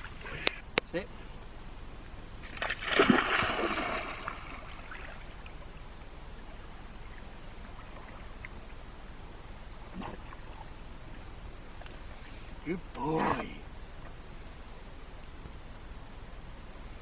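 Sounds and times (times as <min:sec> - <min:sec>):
faint steady background: 0:00.0 - 0:17.0
dog splashing into water: 0:02.5 - 0:05.1.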